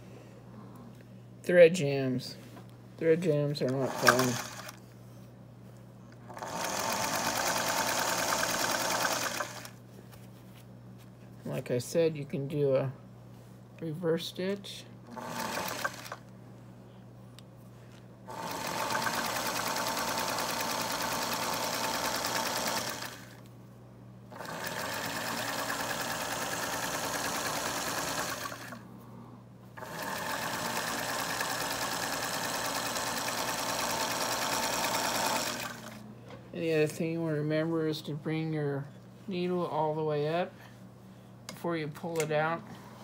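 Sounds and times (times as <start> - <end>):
electric sewing machine stitching: 3.6 - 4.8, 6.3 - 9.8, 15.1 - 16.2, 18.3 - 23.4, 24.3 - 28.8, 29.8 - 36.0.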